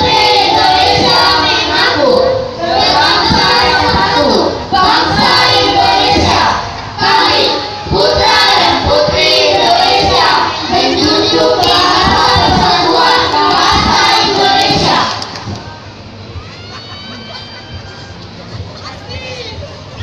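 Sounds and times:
group singing in unison: 0:00.0 - 0:15.6.

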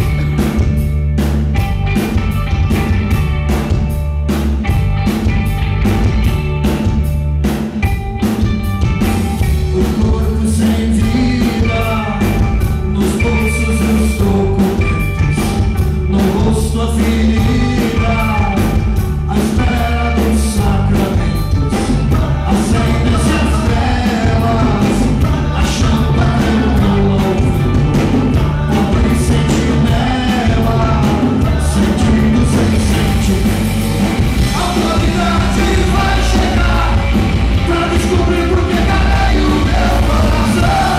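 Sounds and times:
drum kit steady beat: 0:00.0 - 0:40.9
electric bass: 0:00.0 - 0:40.9
electric guitar: 0:00.0 - 0:40.9
man singing: 0:09.5 - 0:40.9.

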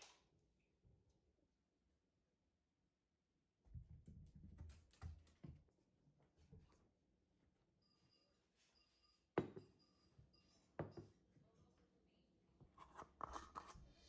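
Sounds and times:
jar lid grating rattle: 0:12.8 - 0:13.8.

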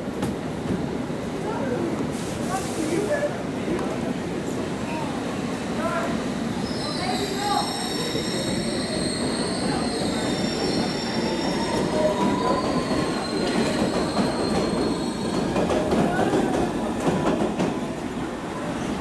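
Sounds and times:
underground train rumbling: 0:00.0 - 0:19.0
high wheel squeals: 0:06.6 - 0:15.4.

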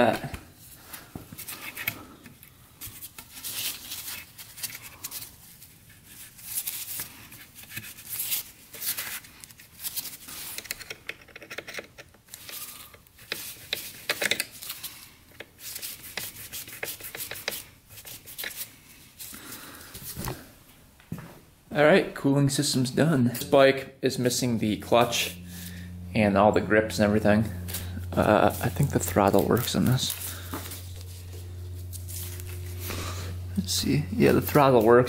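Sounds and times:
hose clamp scraping and clicking: 0:10.5 - 0:14.6.

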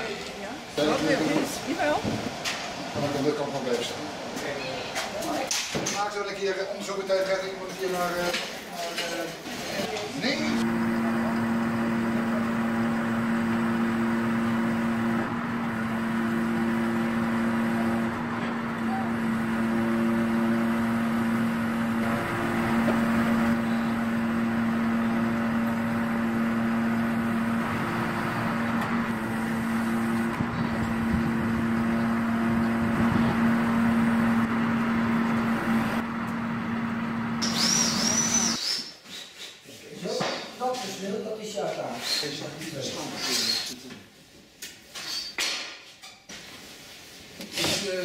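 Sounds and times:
diesel engine and hydraulic pump drone: 0:10.4 - 0:38.6.

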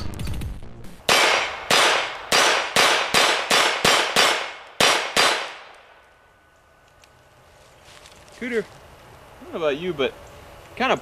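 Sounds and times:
pistol shots: 0:01.1 - 0:05.9.

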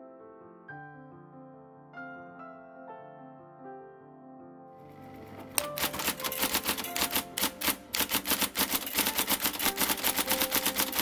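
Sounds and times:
electric typewriter typing fast: 0:05.0 - 0:11.0.

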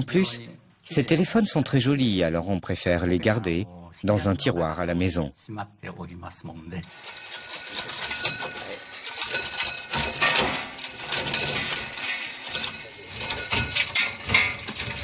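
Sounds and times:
machine shredding phones: 0:06.8 - 0:15.0
fragments clattering into plastic bin: 0:06.9 - 0:15.0.

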